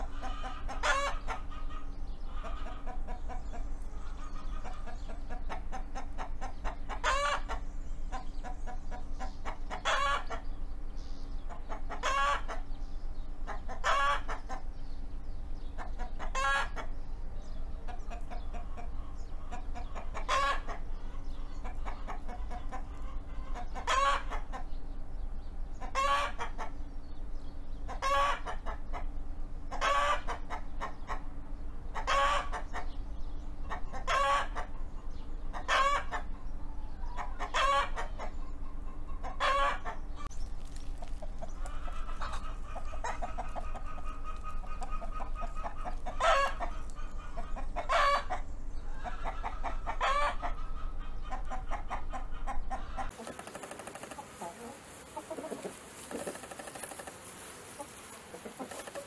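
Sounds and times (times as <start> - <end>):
rooster calling: 52.5 - 59.0.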